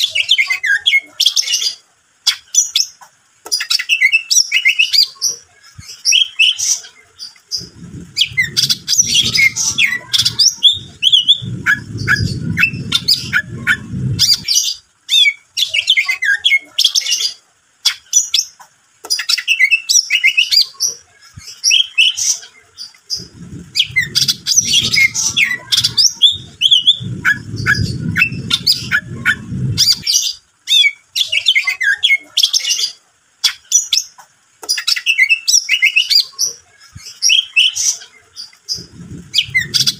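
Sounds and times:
bird singing: 0.0 - 20.8, 21.4 - 36.4, 37.0 - 39.9
low rumbling noise: 7.0 - 15.0, 22.7 - 30.5, 38.6 - 39.9.

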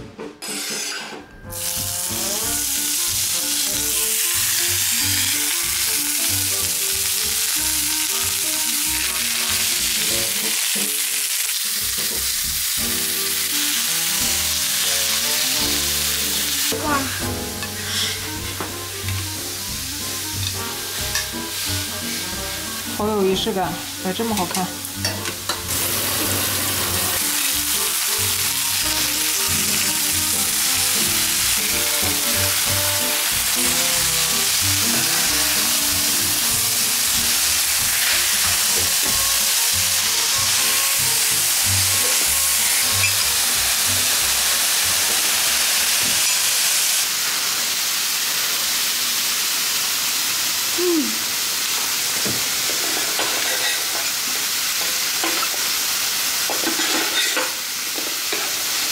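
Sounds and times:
background music: 0.0 - 11.1, 11.8 - 46.2
meat sizzling on a griddle: 1.4 - 58.9.

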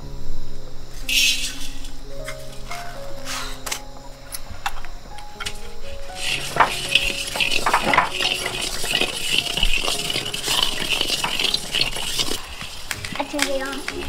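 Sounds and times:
rice grains rustling: 4.5 - 14.0
metal ladle scraping a wok: 5.4 - 13.0.

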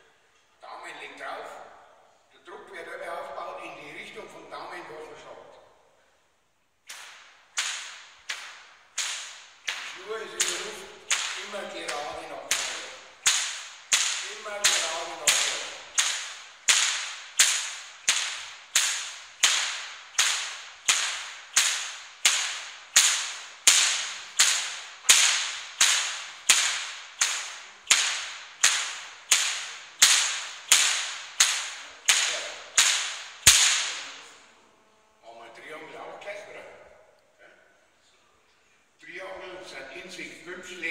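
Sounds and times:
whip cracking: 6.8 - 34.5.

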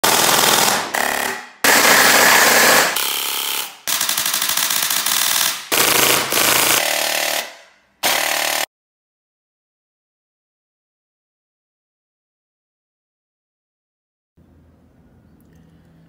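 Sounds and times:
gel blaster full-auto fire: 0.0 - 8.7.

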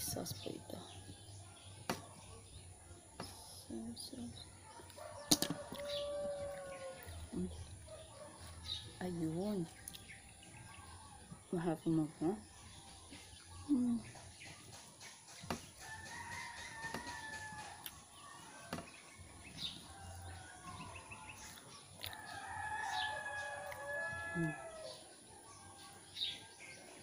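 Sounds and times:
rooster crowing: 4.9 - 7.2, 15.8 - 18.8, 22.1 - 25.0.

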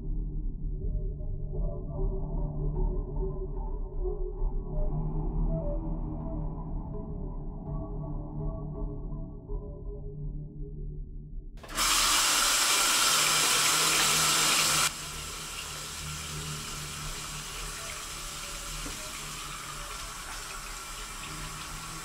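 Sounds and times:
tap water running into sink: 11.6 - 22.0.

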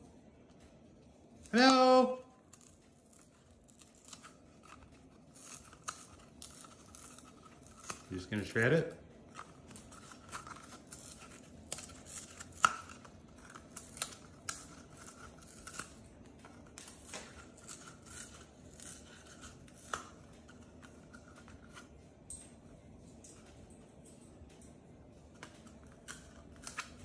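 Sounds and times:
bird tearing cardboard: 2.5 - 21.9, 25.8 - 27.0.

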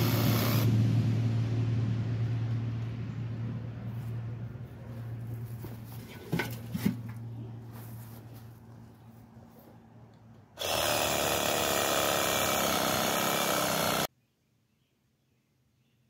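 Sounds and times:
chainsaw running at high revs: 0.0 - 0.7, 10.6 - 14.1.

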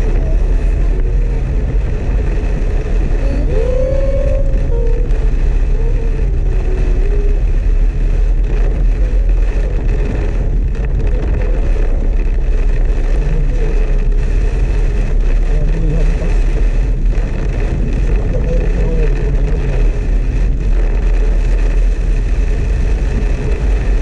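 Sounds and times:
engine and tyres rumbling: 0.0 - 24.0
rain drumming on car roof: 0.0 - 24.0.

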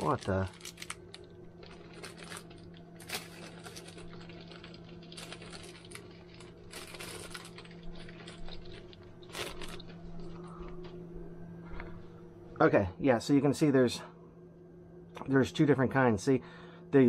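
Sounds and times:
plastic bags crinkling: 0.0 - 11.0
steady low hum: 0.0 - 17.0.

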